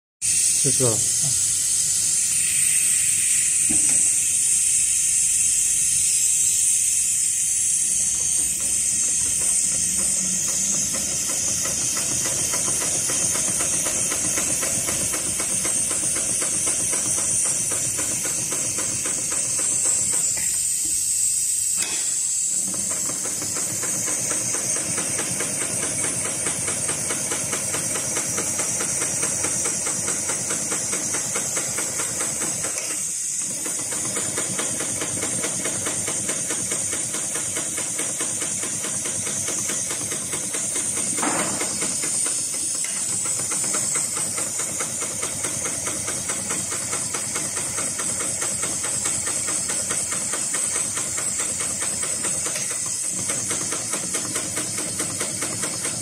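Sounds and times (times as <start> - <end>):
steady hiss: 0.2 - 14.6
sewing machine clattering: 9.3 - 20.2, 22.7 - 56.0.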